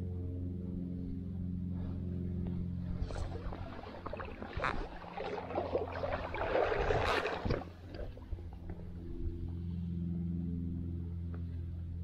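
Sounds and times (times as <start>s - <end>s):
stream water splashing: 3.0s - 8.8s.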